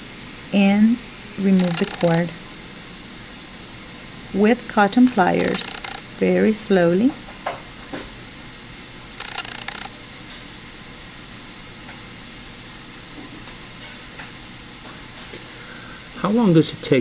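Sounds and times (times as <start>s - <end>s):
room tone hiss: 0.0s - 17.0s
short burst of noise: 9.2s - 10.0s.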